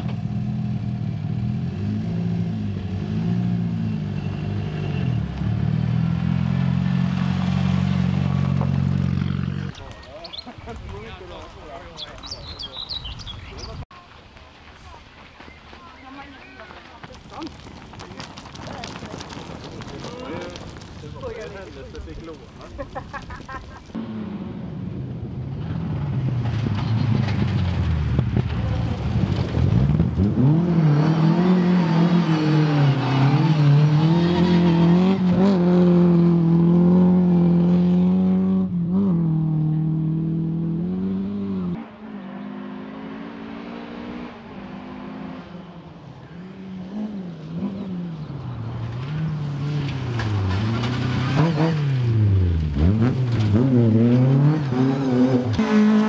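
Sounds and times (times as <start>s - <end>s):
rally car engine at full throttle: 23.9s - 56.0s
engine revving up and down: 29.8s - 45.6s, 49.0s - 56.0s.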